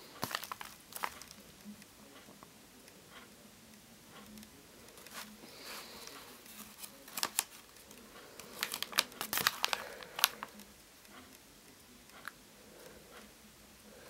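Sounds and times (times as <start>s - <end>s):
paper pages rustling: 0.0s - 1.4s, 5.0s - 10.7s.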